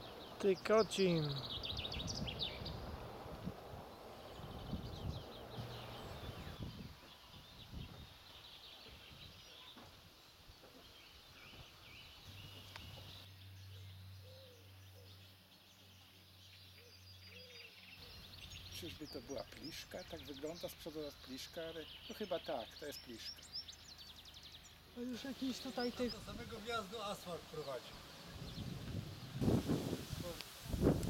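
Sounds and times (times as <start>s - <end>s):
small birds chirping: 0.0s - 31.0s
wind buffeting microphone: 1.4s - 8.2s, 28.0s - 31.0s.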